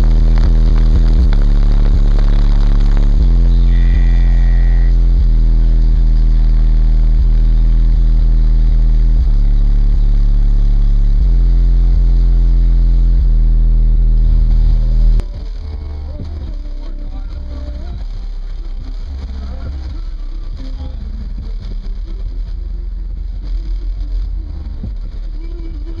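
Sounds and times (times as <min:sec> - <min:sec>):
loud bass from car subwoofers: 0:00.0 - 0:26.0.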